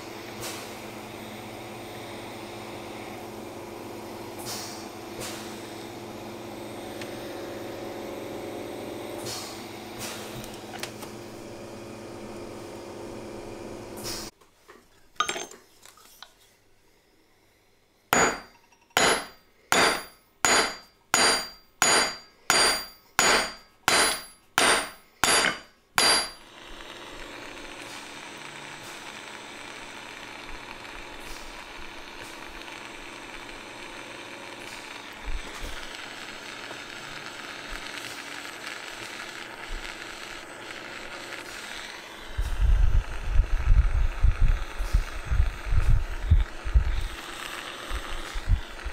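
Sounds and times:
gas torch hissing: 4.3 - 8.4, 9.0 - 11.5, 13.4 - 14.3, 18.1 - 48.9
metal hammer blows on steel: 18.2 - 26.4.

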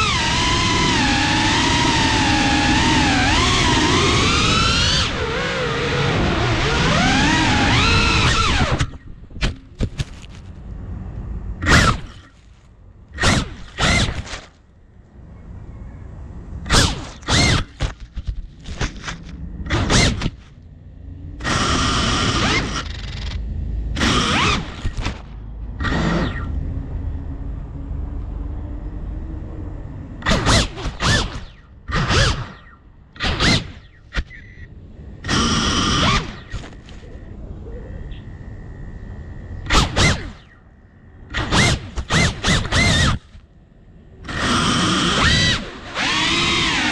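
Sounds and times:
drone motors spinning up: 0.0 - 10.4, 11.6 - 12.4, 13.1 - 14.6, 16.6 - 20.6, 21.3 - 27.2, 30.2 - 37.1, 39.4 - 40.6, 41.3 - 43.4, 44.2 - 46.9
faint high whine: 31.2 - 46.9.

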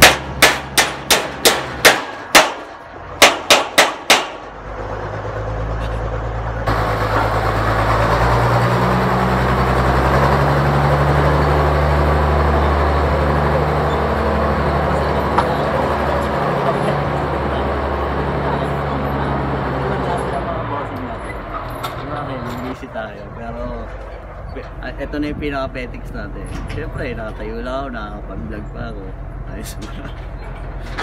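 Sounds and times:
hammer striking nail into wood: 0.0 - 4.5.

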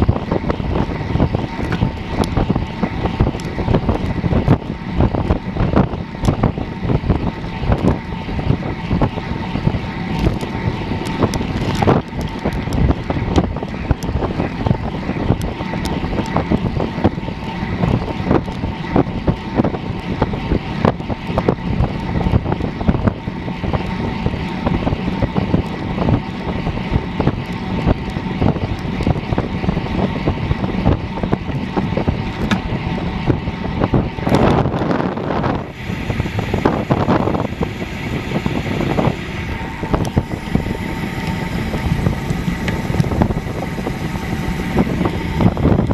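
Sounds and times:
tyres humming on asphalt: 0.0 - 45.9
wind rushing over microphone: 0.0 - 45.9.

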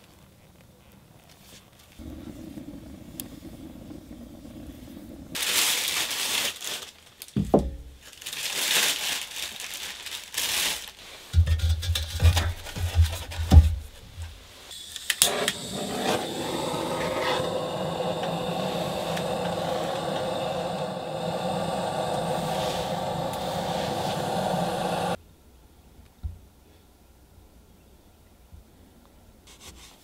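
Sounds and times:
knocks and scraping: 11.4 - 14.4
motor running: 15.2 - 25.2.

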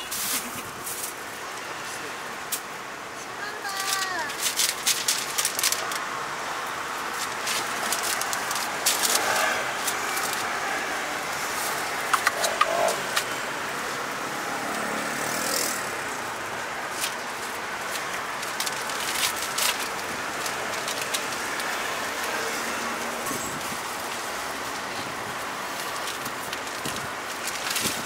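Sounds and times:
street traffic hum: 0.0 - 28.0
paper wrappers crinkling: 3.7 - 14.0, 16.2 - 28.0.

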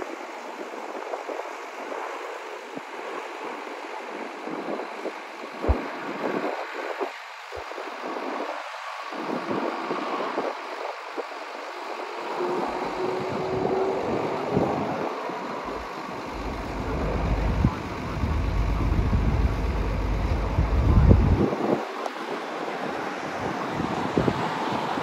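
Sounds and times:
wind buffeting microphone: 0.0 - 25.0
engine roar: 11.8 - 22.2.

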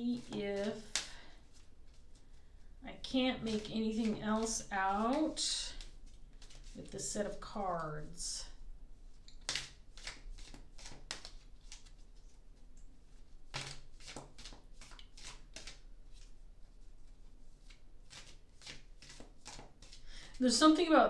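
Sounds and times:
cards being shuffled: 0.2 - 2.3, 3.4 - 7.0, 9.4 - 12.3, 13.1 - 16.3, 17.6 - 20.0.

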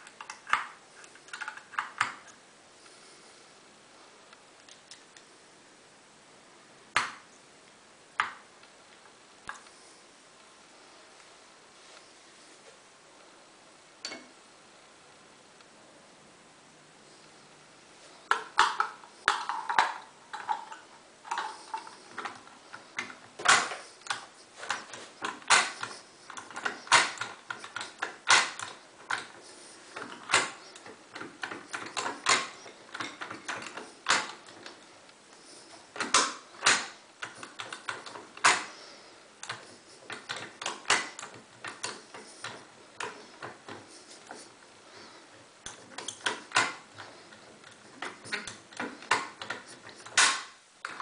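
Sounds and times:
lock-picking tools clicking: 0.0 - 2.4, 18.3 - 51.0.

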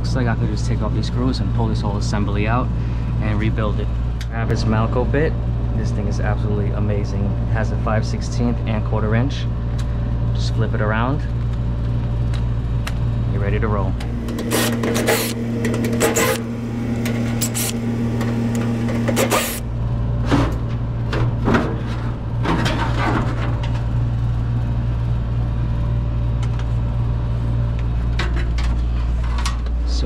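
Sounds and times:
steady low hum: 0.0 - 30.0
cordless drill running: 14.0 - 19.7.

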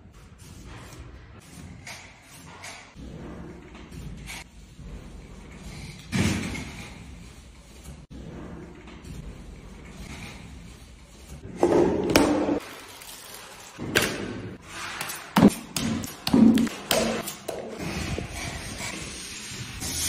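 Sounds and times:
taping knives scraping buckets: 0.2 - 4.6, 14.6 - 20.0.

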